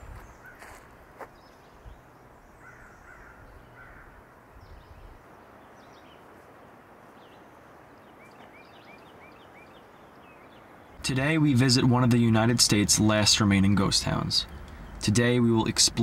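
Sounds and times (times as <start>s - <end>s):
bird calls and chirps: 0.0s - 6.4s, 7.1s - 11.0s.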